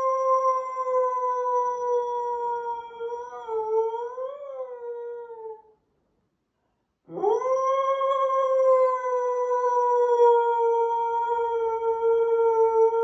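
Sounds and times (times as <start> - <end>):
dog howling: 7.1 - 13.0.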